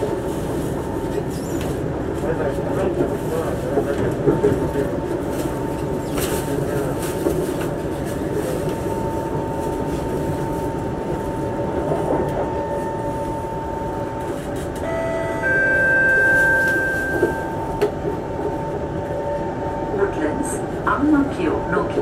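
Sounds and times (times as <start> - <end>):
constant train whine: 0.0 - 22.0
train carriage rumble: 0.0 - 22.0
higher steady tones: 14.8 - 19.8.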